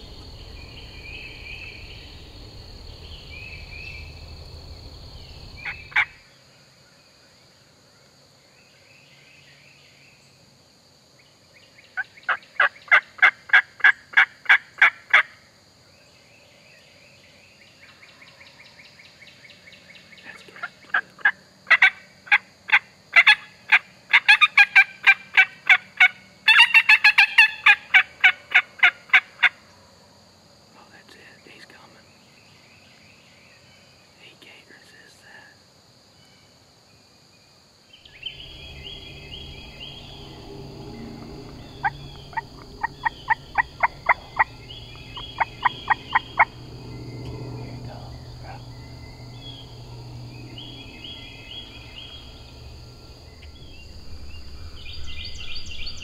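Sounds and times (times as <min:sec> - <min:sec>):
insect chorus: 0:00.0 - 0:56.0
turkey yelping: 0:24.1 - 0:29.5, 0:41.8 - 0:46.5.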